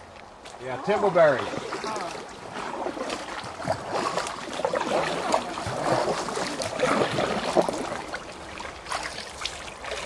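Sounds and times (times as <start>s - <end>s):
water splashing around a kayak: 0.0s - 10.0s.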